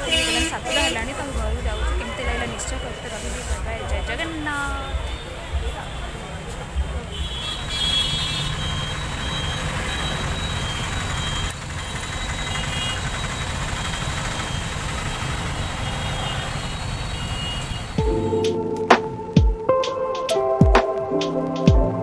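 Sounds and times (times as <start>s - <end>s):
music: 18.0s - 22.0s.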